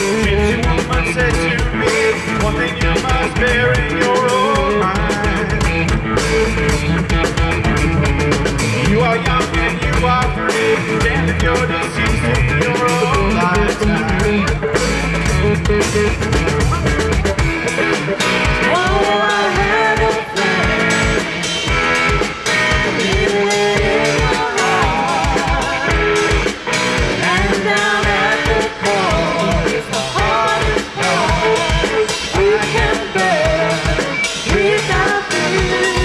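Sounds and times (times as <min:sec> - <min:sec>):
bass guitar: 0:00.0 - 0:36.0
drum kit: 0:00.0 - 0:36.0
electric guitars: 0:00.0 - 0:36.0
woman singing: 0:18.6 - 0:21.2, 0:22.8 - 0:26.6, 0:27.2 - 0:36.0.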